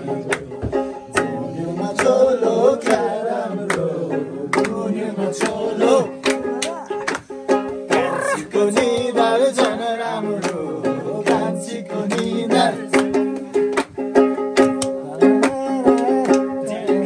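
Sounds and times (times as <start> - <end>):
plucked strings: 0.0 - 17.0
steady percussive beat: 7.5 - 9.7.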